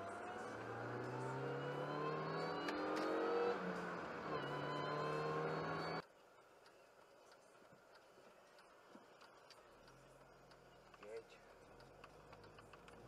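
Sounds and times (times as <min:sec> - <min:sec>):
car engine accelerating: 0:00.0 - 0:06.0.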